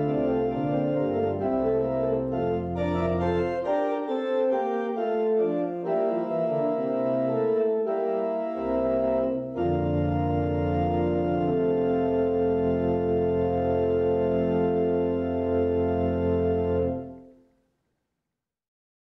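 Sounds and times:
organ playing held chords: 0.0 - 17.3.

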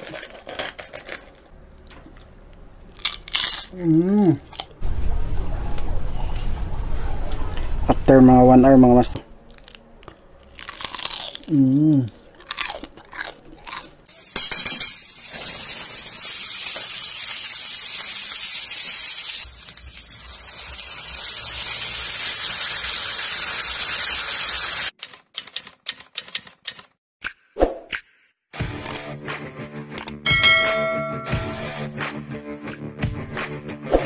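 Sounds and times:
crunching bites of crispy food: 0.0 - 4.8, 9.5 - 14.0
meat sizzling in hot oil: 14.1 - 24.9.

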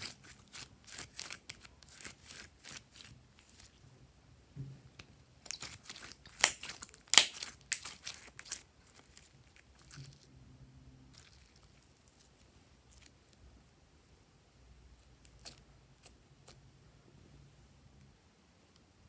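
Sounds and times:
slime crackling and popping: 5.4 - 10.2.

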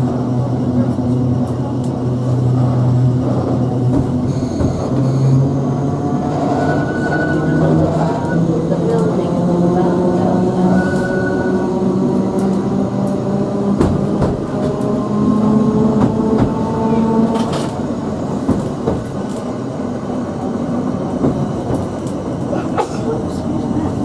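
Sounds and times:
tram rumbling on track: 0.0 - 24.0.

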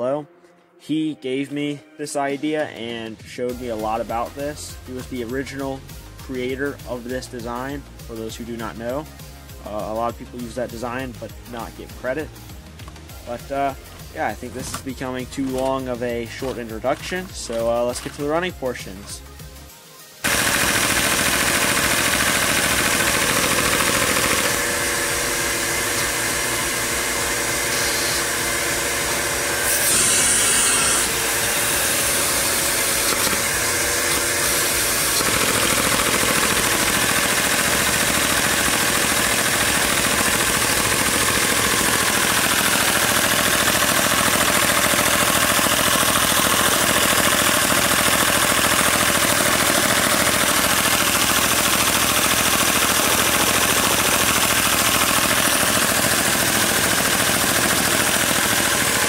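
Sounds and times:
plastic parts clattering rapidly: 20.3 - 26.8, 31.6 - 59.0.

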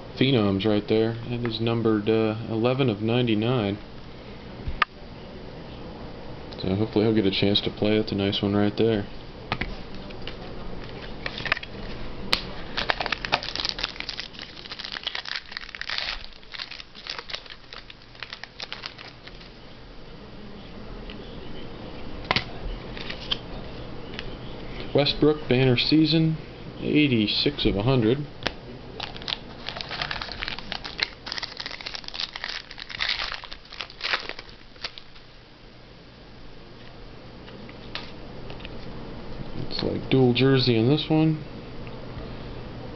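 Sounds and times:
packaging crinkling and rustling: 10.9 - 12.0, 12.6 - 19.6, 29.0 - 35.2.

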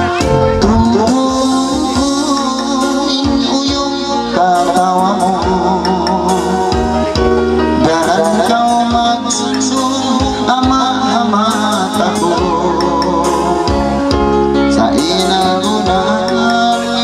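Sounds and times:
bass and guitar accompaniment: 0.0 - 17.0
man singing into a microphone: 0.0 - 17.0.

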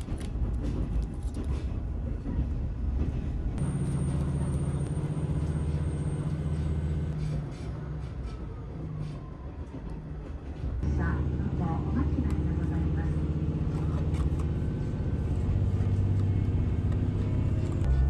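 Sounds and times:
train running rumble: 0.0 - 18.0
diesel engine low drone: 3.6 - 8.5, 10.8 - 18.0.

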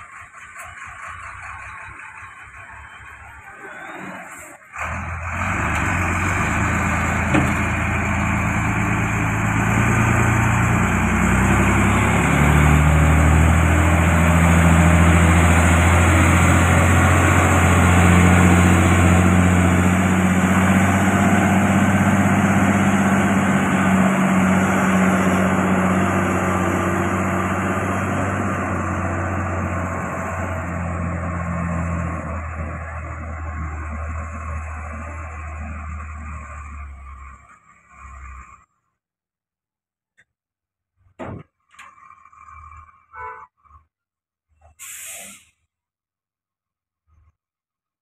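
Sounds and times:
truck diesel engine under load: 0.0 - 39.0, 40.9 - 45.7.

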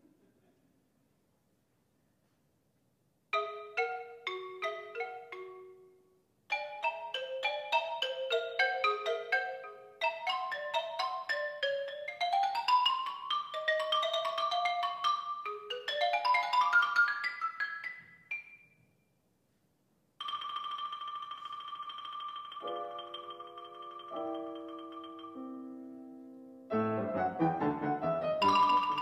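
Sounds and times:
xylophone fast runs: 6.5 - 18.6, 20.2 - 25.4, 28.4 - 29.0
xylophone note rolled: 20.2 - 25.7, 27.6 - 29.0
piano chords: 22.6 - 29.0.

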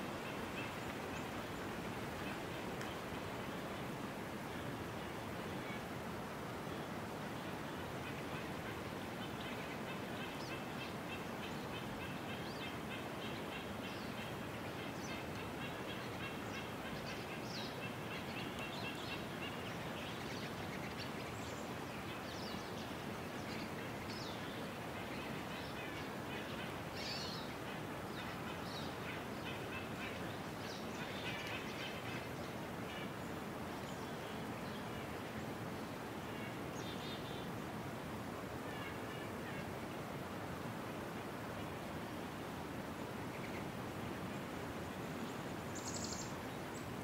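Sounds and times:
small birds chirping: 45.3 - 46.9.

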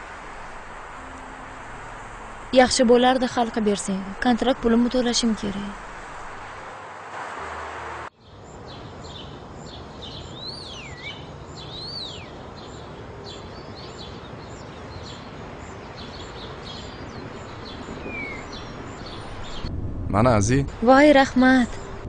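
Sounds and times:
background hiss: 0.0 - 22.0
small birds chirping: 8.2 - 19.7
bird calls sweeping up and down: 16.0 - 19.7.

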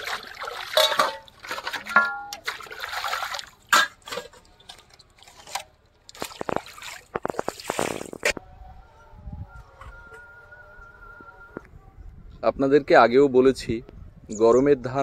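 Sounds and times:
water splashing and trickling: 0.0 - 8.4.

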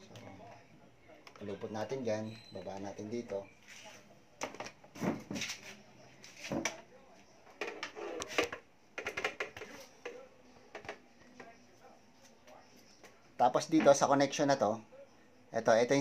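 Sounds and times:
clicks and knocks of plastic parts: 7.6 - 11.0.

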